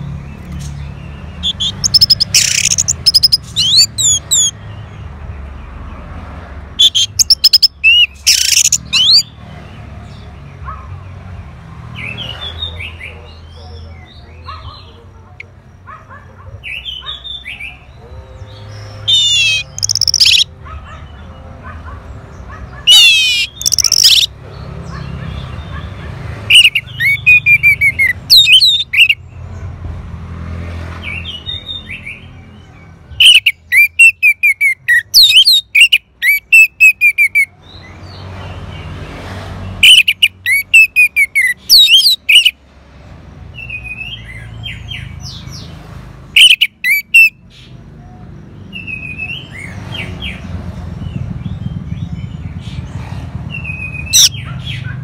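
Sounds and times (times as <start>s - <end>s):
thrush singing: 16.8s - 21.5s.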